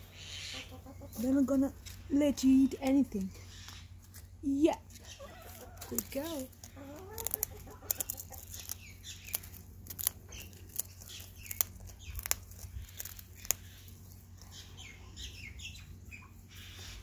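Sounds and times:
cockatoo crunching a cracker: 4.9s - 15.3s.

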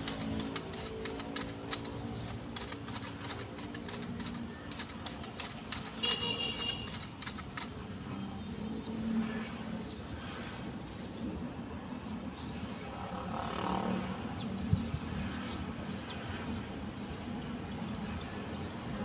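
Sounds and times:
hedge shears snipping twigs: 0.0s - 10.3s.

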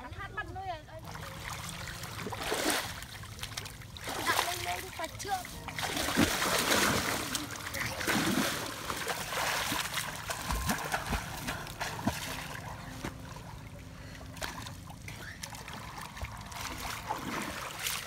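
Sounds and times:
water splashing and sloshing: 0.7s - 18.0s.

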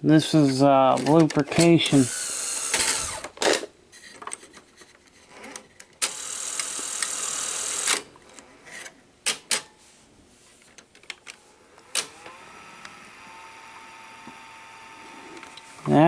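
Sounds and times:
tape loading mechanism whirring: 0.9s - 3.7s, 5.4s - 9.7s, 11.8s - 16.0s.

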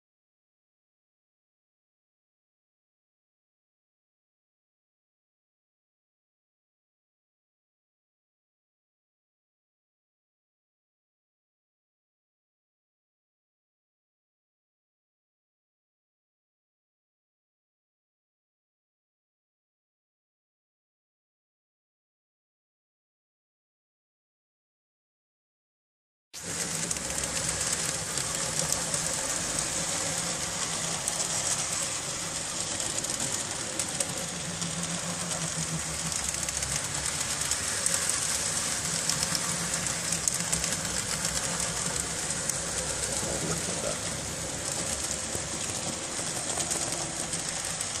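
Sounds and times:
model trams whirring on rails: 26.4s - 48.0s.

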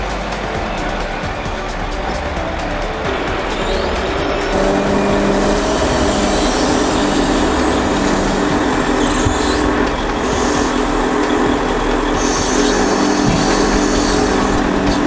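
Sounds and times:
hydraulic crane whine: 0.0s - 15.0s
truck engine running: 0.0s - 15.0s.

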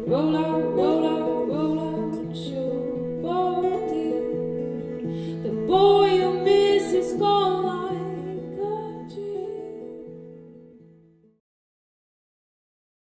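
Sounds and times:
person singing: 0.0s - 10.4s
plucked acoustic guitar: 0.0s - 11.4s.

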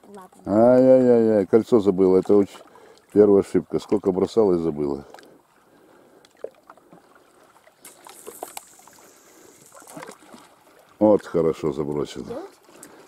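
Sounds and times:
fishing line running off reel: 7.8s - 10.3s.

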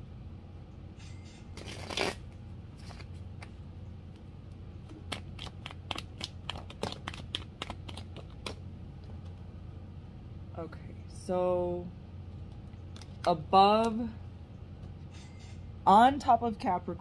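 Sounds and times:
cards being shuffled: 1.5s - 4.2s, 4.8s - 9.4s, 12.4s - 13.9s.

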